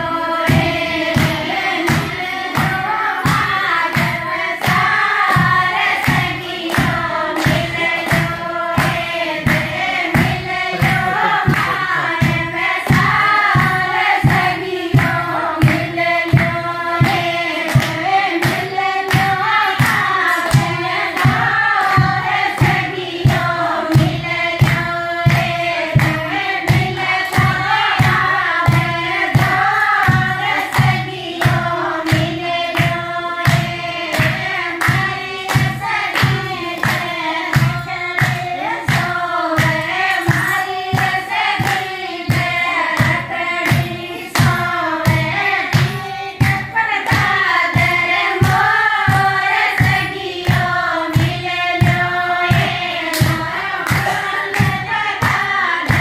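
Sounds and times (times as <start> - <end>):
women singing in unison: 0.0 - 56.0
hands clapping a beat: 0.1 - 56.0.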